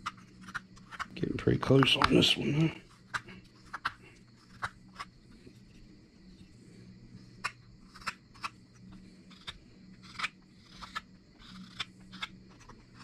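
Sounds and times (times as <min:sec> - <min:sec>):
faint low hum: 0:00.0 - 0:13.0
knife cutting wood: 0:07.4 - 0:13.0.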